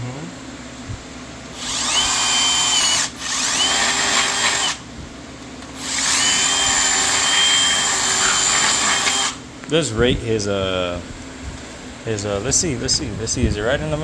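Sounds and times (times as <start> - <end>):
power drill whining: 1.6 - 4.8, 5.8 - 9.4.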